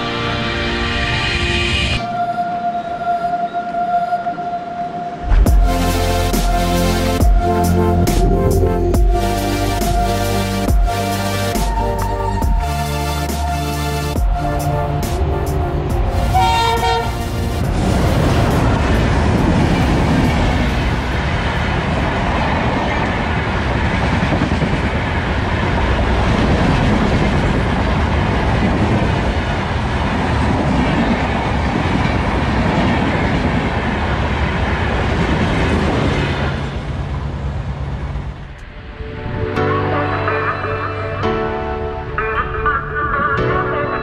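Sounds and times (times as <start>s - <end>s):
train wheels rumbling on rails: 14.2s - 38.7s.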